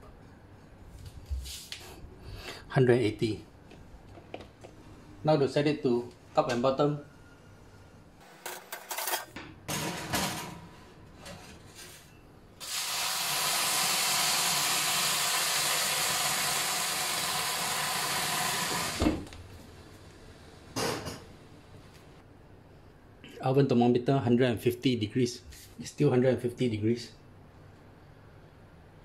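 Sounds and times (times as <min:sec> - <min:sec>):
steam hissing: 0:12.6 - 0:19.2.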